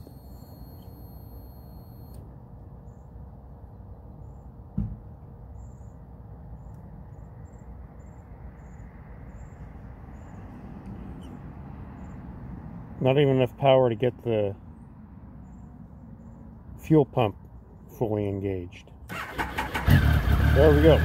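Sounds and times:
faint high chirps: 0:00.0 - 0:02.2.

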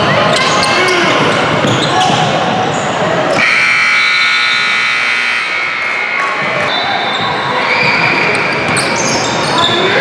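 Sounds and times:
scoreboard horn blast: 0:03.4 - 0:05.7.

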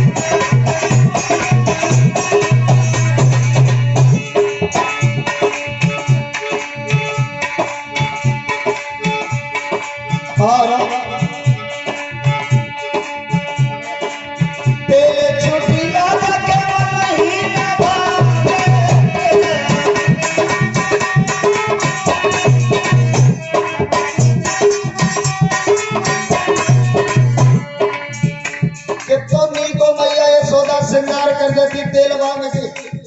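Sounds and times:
hand drum beat: 0:00.0 - 0:33.0
harmonium chords: 0:00.0 - 0:33.0
man singing: 0:10.1 - 0:23.6, 0:26.3 - 0:33.0.

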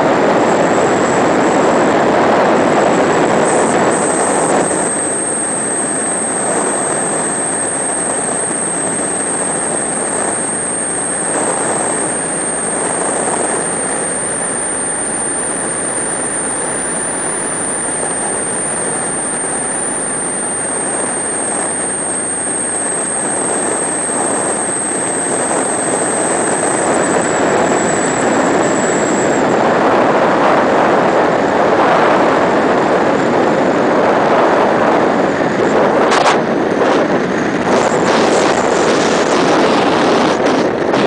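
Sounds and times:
aircraft engine and rushing air: 0:00.0 - 0:41.0
high whine falling in pitch: 0:00.0 - 0:41.0.

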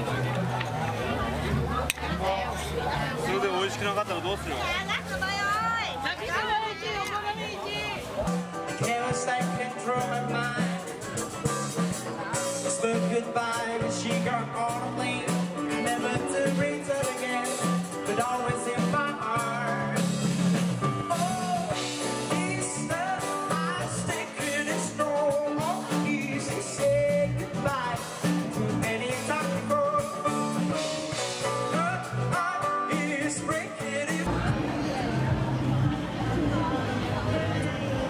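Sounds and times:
live rock band playing: 0:03.4 - 0:37.2
person singing: 0:08.3 - 0:35.8.

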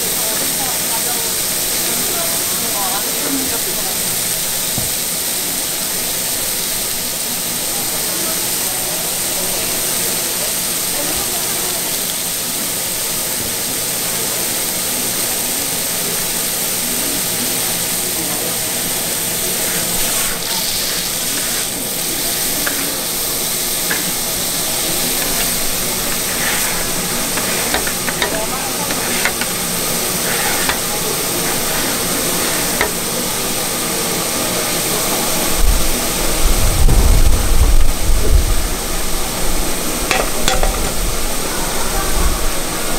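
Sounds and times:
food sizzling on a griddle: 0:00.0 - 0:42.9
metal spatula clicking and scraping: 0:19.6 - 0:33.0.

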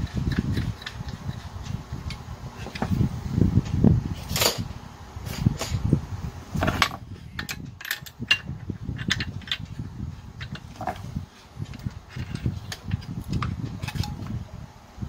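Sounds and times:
metal tool clinks and knocks: 0:06.8 - 0:09.6.

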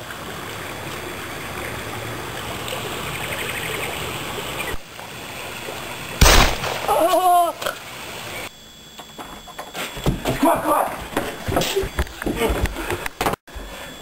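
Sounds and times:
gunshot: 0:06.2 - 0:07.0
person crying out: 0:06.8 - 0:07.7.

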